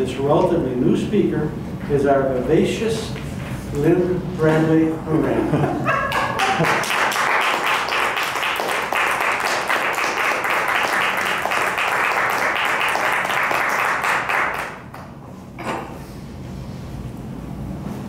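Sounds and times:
audience clapping: 0:06.1 - 0:15.1.

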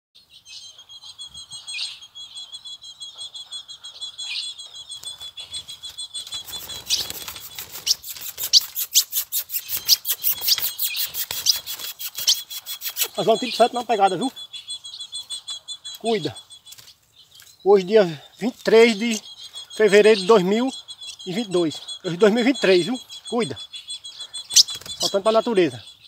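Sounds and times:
bird chip notes: 0:00.4 - 0:26.0
sharp clicks: 0:06.2 - 0:14.4.

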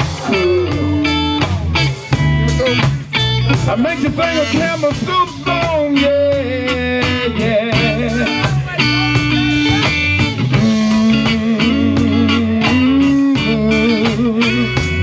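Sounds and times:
soul-blues band playing: 0:00.0 - 0:15.0.

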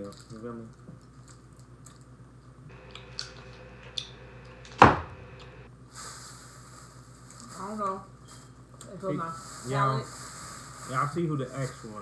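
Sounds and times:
loud thump: 0:04.5 - 0:05.6.

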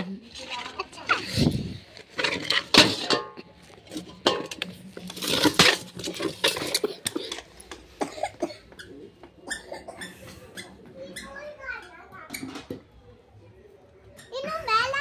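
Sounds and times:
metal bowl scraping on concrete: 0:00.0 - 0:08.0.

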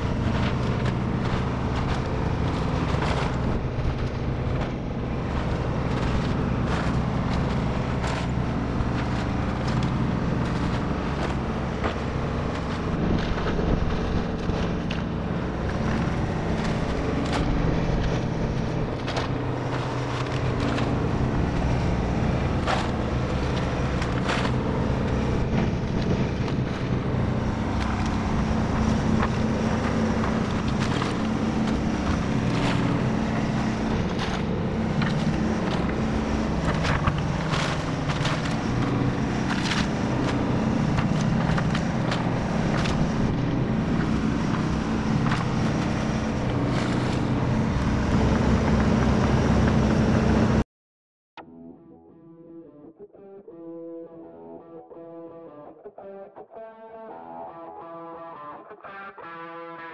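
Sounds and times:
wood cracking and clunking: 0:00.0 - 0:47.4
excavator diesel engine running: 0:00.0 - 0:50.6.

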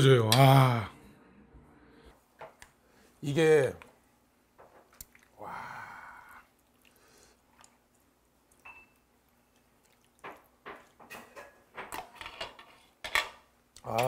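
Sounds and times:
ladle clinking: 0:08.5 - 0:09.1.

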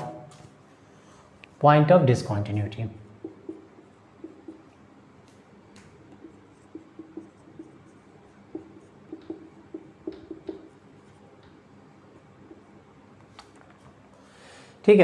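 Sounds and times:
whiteboard marker squeaking: 0:06.2 - 0:10.8.

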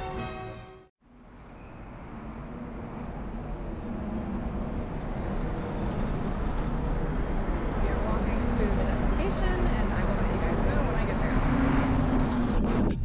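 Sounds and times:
background music: 0:00.0 - 0:00.9
passing cars and buses: 0:00.0 - 0:13.0.

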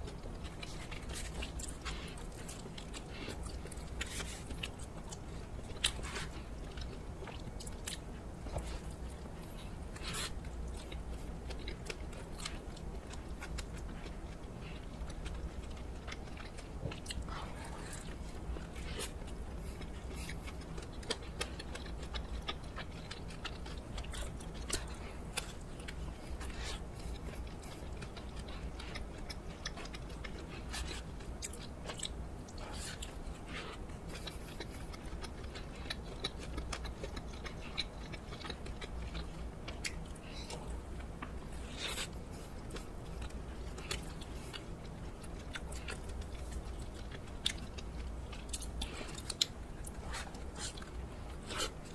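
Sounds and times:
chewing and biting food: 0:00.0 - 0:51.9.

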